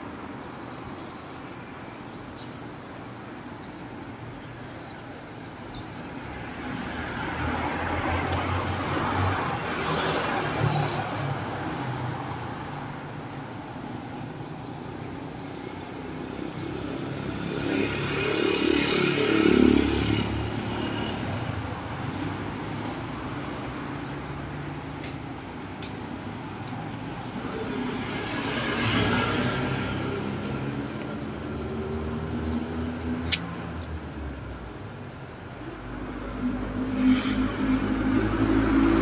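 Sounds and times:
traffic hum: 0:00.0 - 0:39.0
vehicle passing by: 0:06.4 - 0:13.7, 0:16.0 - 0:34.9, 0:35.6 - 0:39.0.

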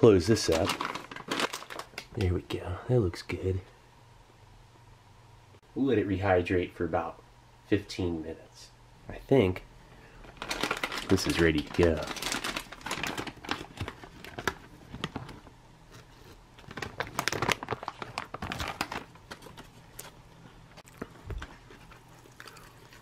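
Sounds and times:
plastic pouch crinkling: 0:00.3 - 0:02.4, 0:10.2 - 0:15.4, 0:16.6 - 0:20.2.

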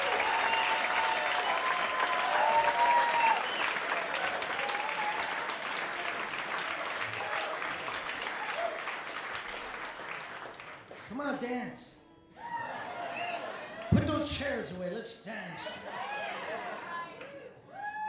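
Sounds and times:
audience cheering: 0:00.0 - 0:09.7, 0:12.4 - 0:14.6, 0:15.4 - 0:18.0
audience applauding: 0:00.0 - 0:11.5, 0:12.6 - 0:14.6.

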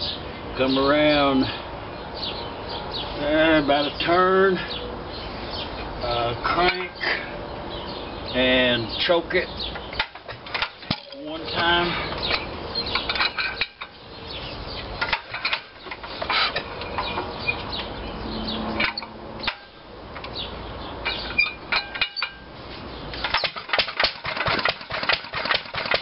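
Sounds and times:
metallic clicks of engine crank: 0:09.7 - 0:14.0, 0:15.0 - 0:17.9, 0:18.7 - 0:20.4, 0:21.0 - 0:22.5, 0:23.1 - 0:26.0
single-cylinder engine running: 0:23.2 - 0:26.0.

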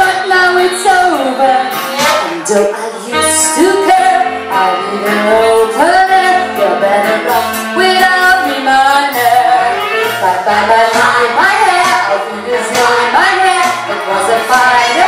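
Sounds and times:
woman singing amplified: 0:00.0 - 0:15.0
backing track with bass beat: 0:09.1 - 0:15.0.

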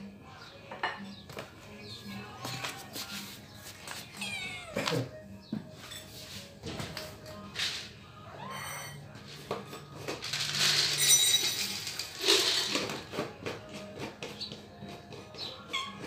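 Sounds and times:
dry cat food pouring into bowls: 0:10.2 - 0:13.0.

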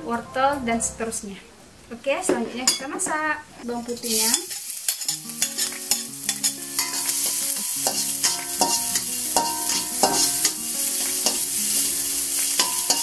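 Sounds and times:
garlic sizzling in oil: 0:03.6 - 0:13.0
metal spatula scraping a pan: 0:04.0 - 0:13.0.

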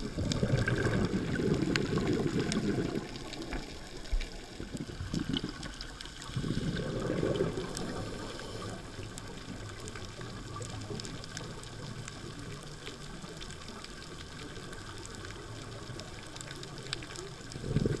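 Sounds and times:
low underwater hiss: 0:00.0 - 0:18.0
underwater exhaled bubbles: 0:00.0 - 0:18.0
faint clicks: 0:07.0 - 0:18.0.

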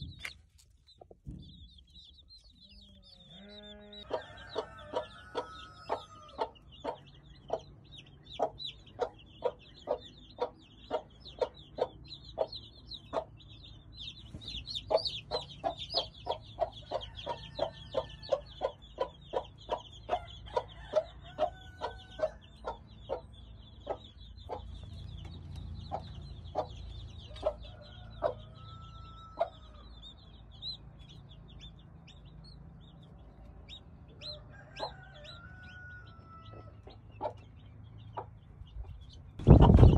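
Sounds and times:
hen clucking: 0:00.0 - 0:30.3
chicks peeping: 0:00.0 - 0:39.9.

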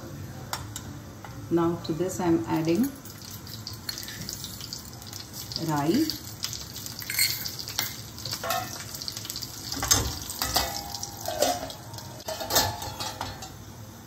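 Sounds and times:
oil sizzling: 0:02.1 - 0:13.8
seeds popping in oil: 0:02.8 - 0:11.1
steel lid clanking onto pan: 0:07.0 - 0:08.9, 0:09.7 - 0:13.6.

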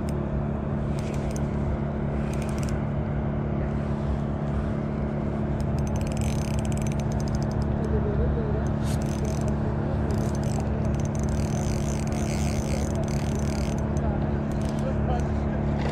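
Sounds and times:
road traffic drone: 0:00.0 - 0:15.9
fishing reel ticking: 0:05.6 - 0:07.7, 0:08.9 - 0:14.8.

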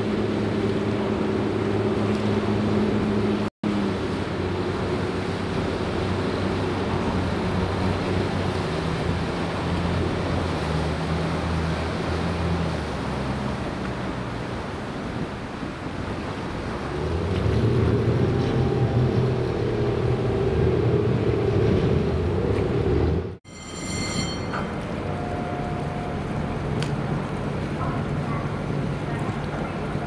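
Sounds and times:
boat engine running: 0:00.0 - 0:23.4, 0:24.0 - 0:30.0
water rushing past hull: 0:00.0 - 0:23.4, 0:24.0 - 0:30.0
short high tone: 0:23.5 - 0:26.2.

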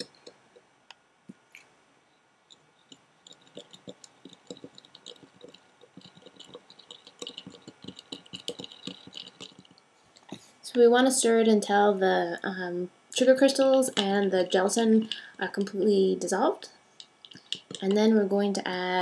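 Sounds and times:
utensil clicking against beaker: 0:02.5 - 0:09.8, 0:17.0 - 0:18.1.

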